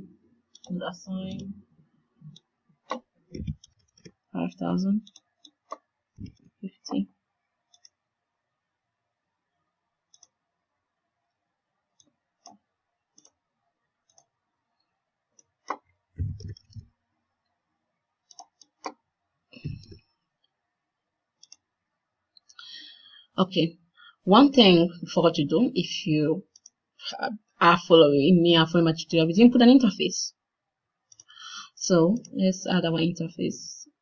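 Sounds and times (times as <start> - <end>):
mouse and keyboard clicks: 18.3 - 19.0, 21.4 - 21.6.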